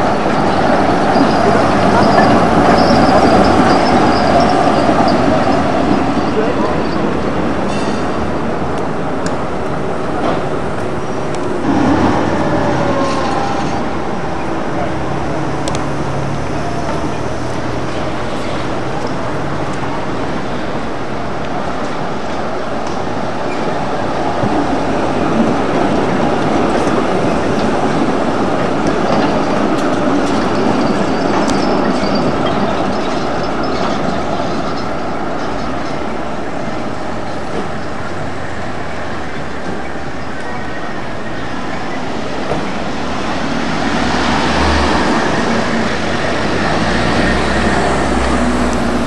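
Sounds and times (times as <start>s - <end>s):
street traffic noise: 0.0s - 49.0s
tram wheels rumbling on rails: 0.0s - 49.0s
high wheel squeal: 0.2s - 8.3s, 11.1s - 18.8s, 30.2s - 36.0s.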